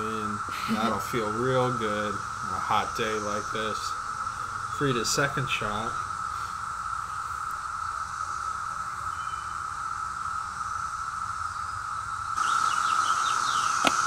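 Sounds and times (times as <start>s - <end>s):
insects droning: 0.0s - 14.0s
short bird chirps: 12.4s - 14.0s.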